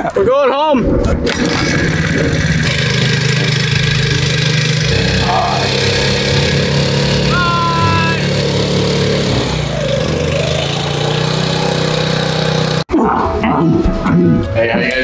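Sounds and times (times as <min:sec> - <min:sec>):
motorboat engine running: 0:01.2 - 0:12.8.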